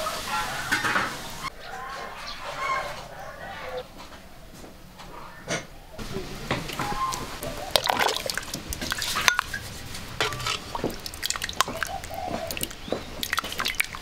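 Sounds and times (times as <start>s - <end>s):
water dripping: 6.1s - 9.6s, 10.2s - 14.0s.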